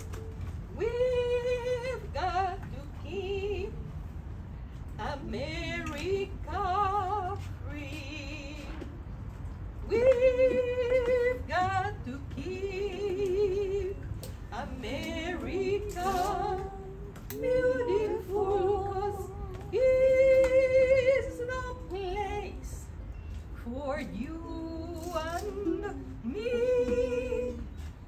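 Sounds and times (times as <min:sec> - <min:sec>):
woman singing with vibrato: 0:00.0 - 0:04.1, 0:05.0 - 0:09.1, 0:09.8 - 0:28.0.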